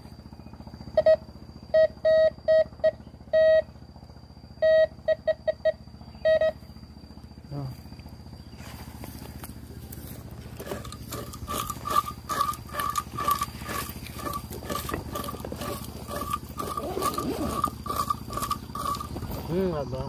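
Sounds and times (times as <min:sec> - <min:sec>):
metal detector beeping: 0:00.9 - 0:03.7, 0:04.6 - 0:06.6, 0:10.6 - 0:19.6.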